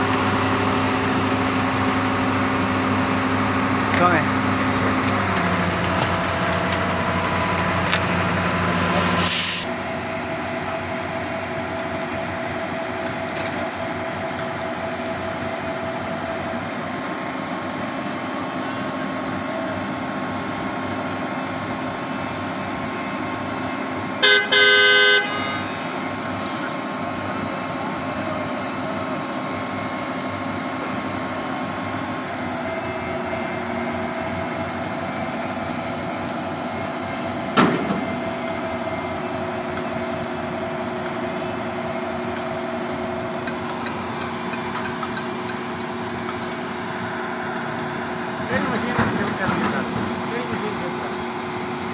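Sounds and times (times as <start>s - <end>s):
truck engine and hydraulics running: 0.0s - 51.9s
vehicle horn: 24.2s - 25.9s.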